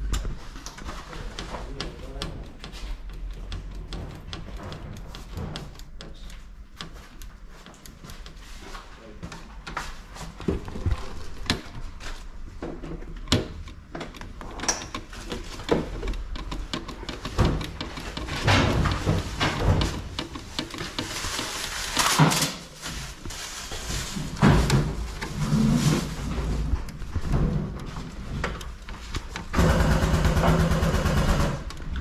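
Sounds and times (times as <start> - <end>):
screwdriver on plastic screws: 13.2 - 22.6.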